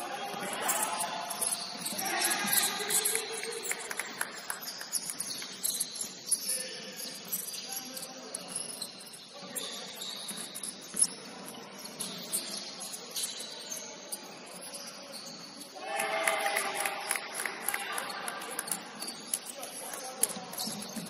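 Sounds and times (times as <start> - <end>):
sneakers squeaking on hardwood: 0.0 - 15.8, 17.3 - 21.0.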